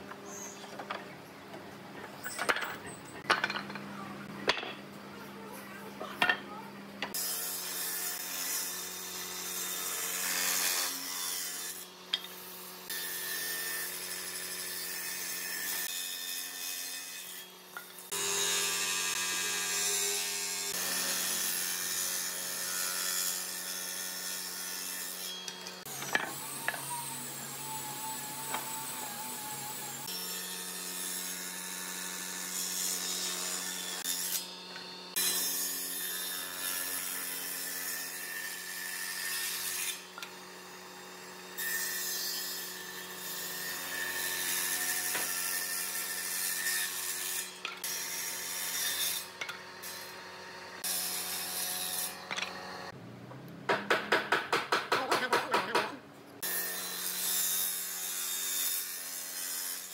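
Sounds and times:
saw cutting wood: 7.1 - 53.0, 56.4 - 59.9
table saw motor hum: 25.8 - 30.2.

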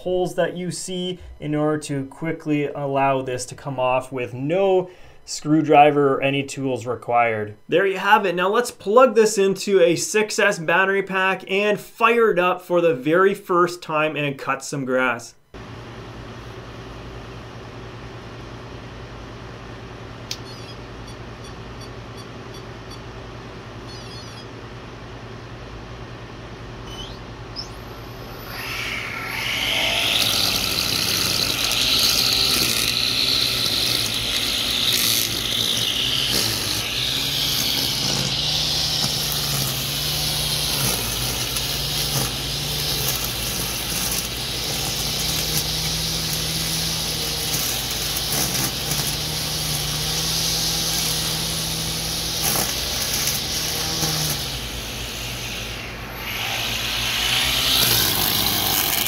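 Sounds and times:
electric motor whining: 26.9 - 59.0
trimmer head cutting grass: 28.2 - 59.0.

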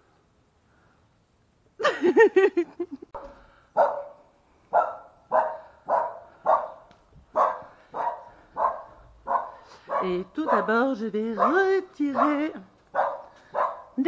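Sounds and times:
dog barking: 3.2 - 14.0
dog yelping: 4.8 - 6.8, 7.4 - 10.8, 13.0 - 13.9.

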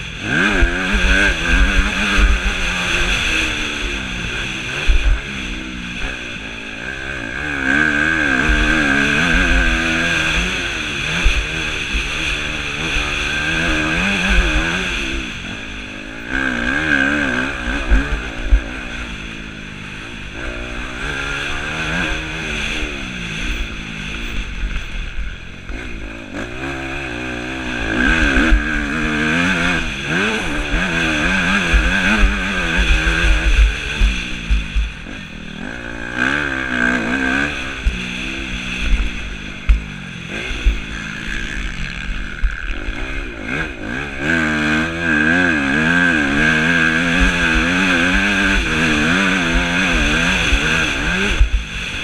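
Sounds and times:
motocross bike engine revving: 0.0 - 52.0
wind rumble: 0.0 - 52.0.

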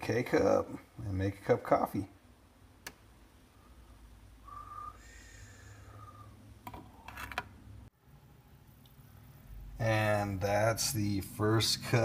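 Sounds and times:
thin whistle-like tone: 4.5 - 5.2.

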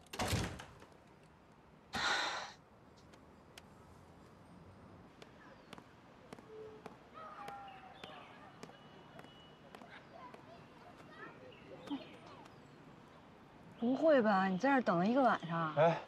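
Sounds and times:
woman sighing heavily: 2.0 - 2.6.

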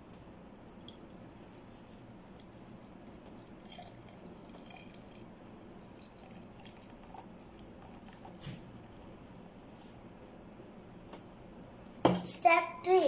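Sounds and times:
water trickling into a cup: 0.5 - 1.6, 2.3 - 8.4.

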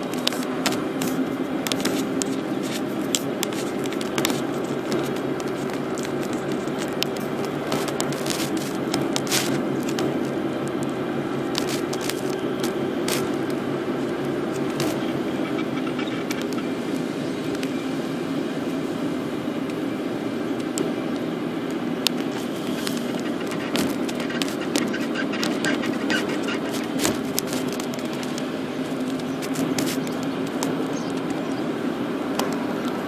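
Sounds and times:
car engine and tyre noise: 0.0 - 33.0.

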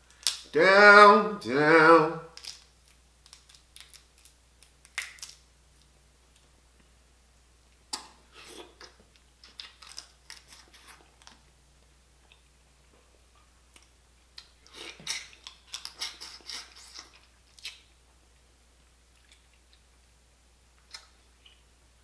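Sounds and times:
crab shell crackling: 2.3 - 5.5
chewing: 19.1 - 19.8.

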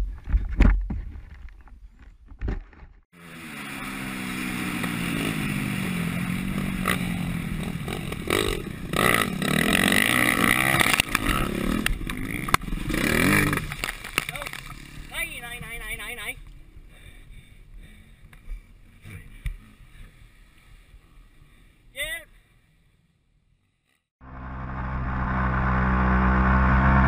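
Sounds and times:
dirt bike engine revving: 3.2 - 13.8.

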